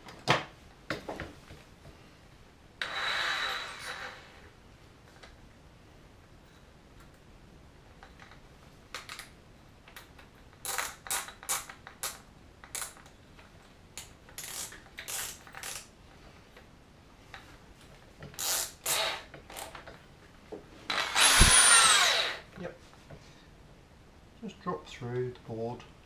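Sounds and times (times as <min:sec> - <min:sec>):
power drill clicks and rattles: 0:20.9 - 0:22.4.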